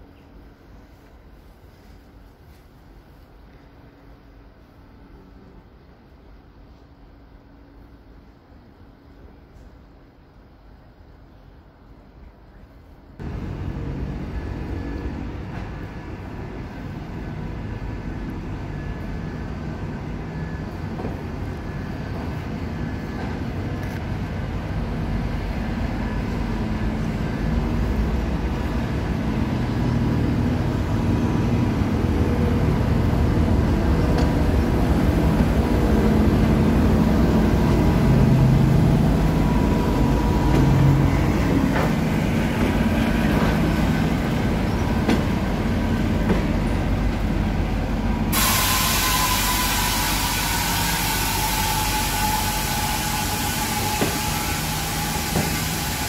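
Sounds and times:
passenger coaches rolling by: 0:00.0 - 0:56.0
diesel locomotive engine passing: 0:13.2 - 0:56.0
brake hiss: 0:48.2 - 0:56.0
falling brake squeal: 0:48.4 - 0:56.0.

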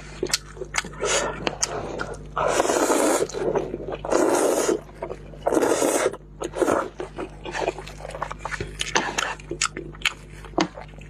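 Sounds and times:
person slurping noodles: 0:00.9 - 0:08.1.

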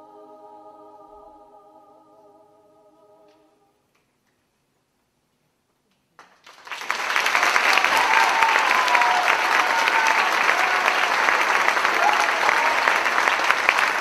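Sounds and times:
audience applause: 0:06.2 - 0:14.0.

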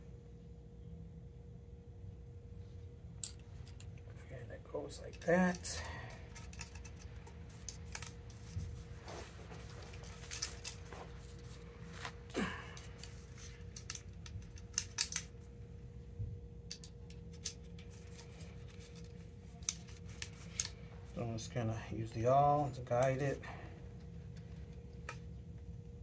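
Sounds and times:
plastic clicks and rattles: 0:12.8 - 0:15.3.

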